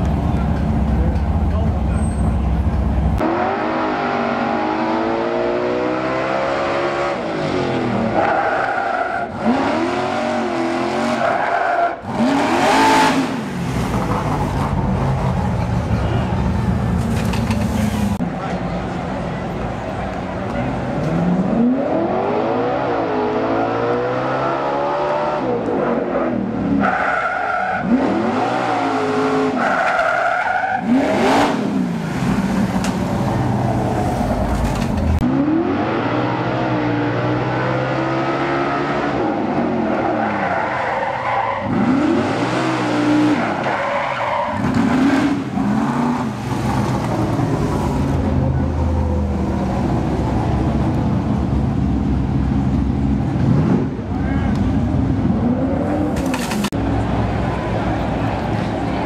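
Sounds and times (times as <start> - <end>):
racing engine revving in surges: 3.2 - 15.4, 20.9 - 48.4.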